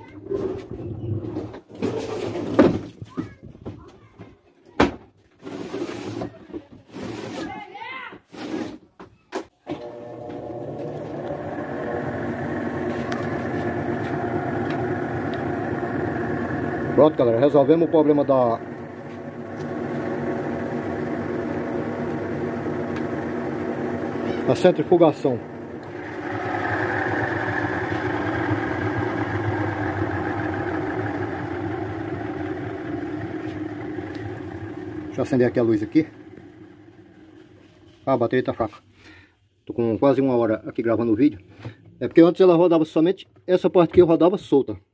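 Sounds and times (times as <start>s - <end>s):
washing machine spinning: 9.8s - 37.8s.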